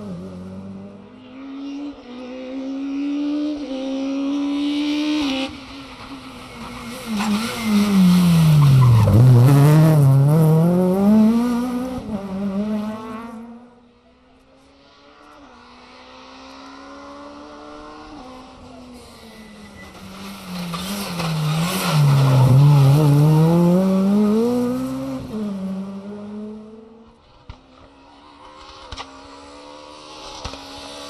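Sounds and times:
rally car engine revving: 0.0s - 13.8s, 15.2s - 27.0s.

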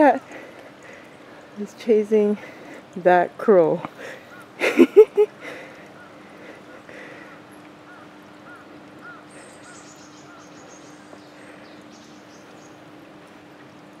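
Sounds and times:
crow cawing: 7.0s - 10.5s.

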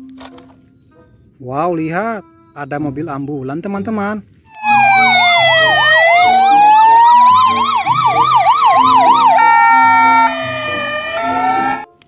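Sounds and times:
ambulance siren wailing: 4.5s - 11.9s.

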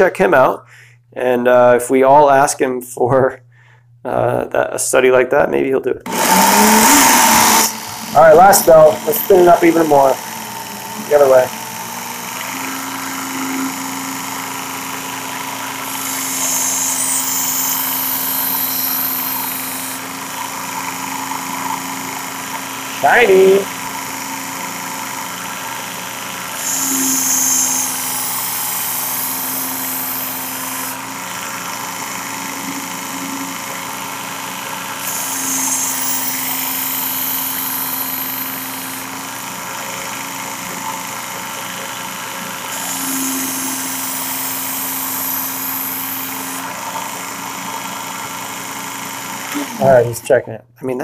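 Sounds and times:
belt grinder motor whine: 6.0s - 50.2s
steel hissing on abrasive belt: 6.1s - 24.0s, 26.6s - 33.0s, 35.0s - 39.6s, 42.7s - 47.4s.

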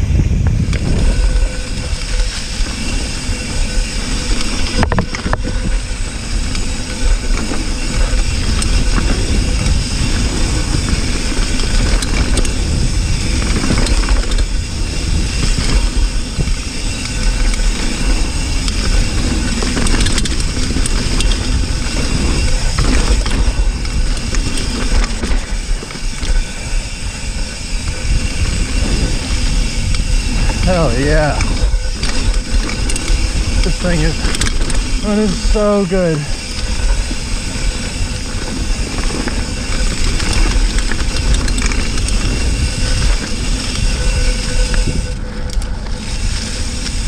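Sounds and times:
bike rattles and clicks: 0.0s - 47.0s
tyre noise on dirt: 0.0s - 47.0s
wind rumble on microphone: 0.0s - 47.0s.

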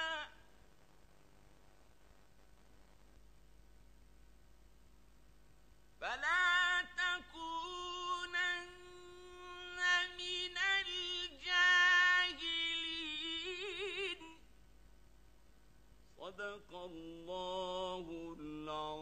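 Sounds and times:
man reciting melodically: 6.0s - 14.4s, 16.1s - 19.0s.

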